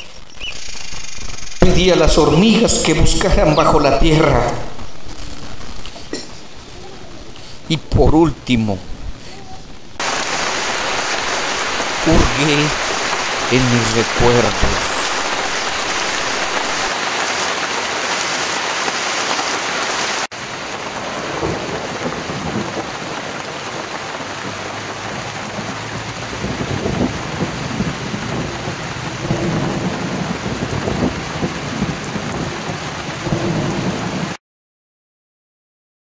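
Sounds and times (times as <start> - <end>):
heavy rain: 0.0 - 34.4
thunder rumbling: 10.0 - 17.6, 20.4 - 34.4.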